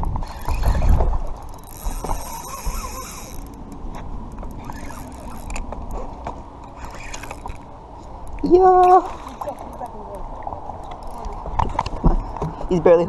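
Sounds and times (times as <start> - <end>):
fishing reel clicking: 0.2 - 6.0, 6.6 - 8.5, 9.3 - 10.0, 10.8 - 11.4.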